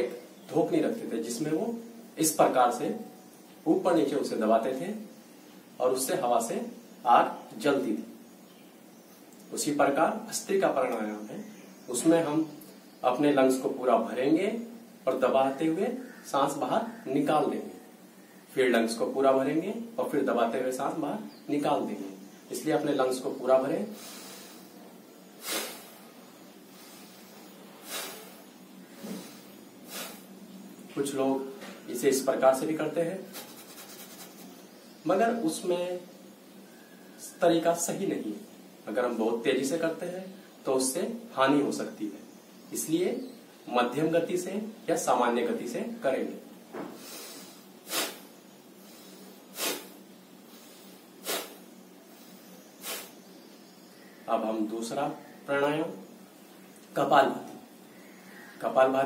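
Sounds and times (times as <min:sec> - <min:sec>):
man breathing forcefully through nose: 0:24.0 - 0:24.8, 0:25.4 - 0:30.4, 0:47.0 - 0:53.2.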